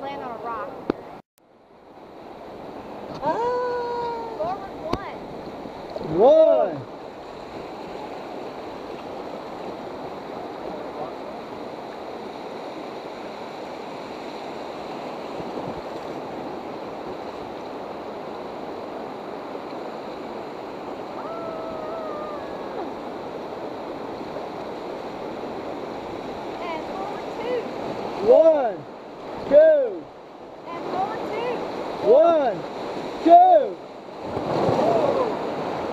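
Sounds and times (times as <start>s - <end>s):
whitewater river rushing: 2.2s - 35.9s
faint distant shout: 21.2s - 23.0s, 34.7s - 35.4s.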